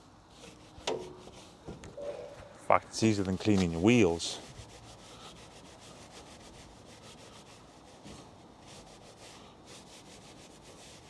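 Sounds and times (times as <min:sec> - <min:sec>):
brush scrubbing metal exhaust tip: 0:02.9 - 0:11.0.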